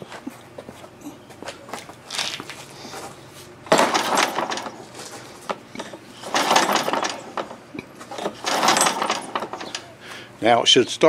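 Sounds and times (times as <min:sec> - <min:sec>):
mower recoil starter pulls: 0:03.7 - 0:10.0.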